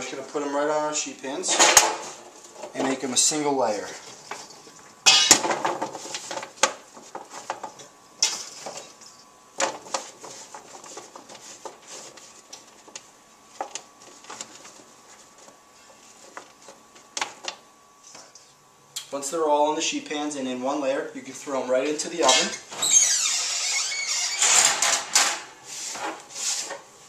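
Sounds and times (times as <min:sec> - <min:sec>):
potato pieces clattering on metal pan: 0:05.1 - 0:05.8.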